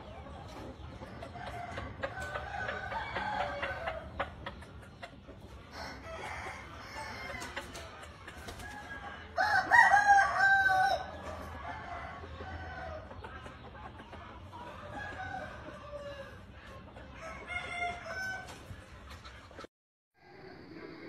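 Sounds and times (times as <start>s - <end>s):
chickens clucking: 0.0s - 21.0s
rooster crowing: 5.7s - 7.5s, 8.9s - 13.0s.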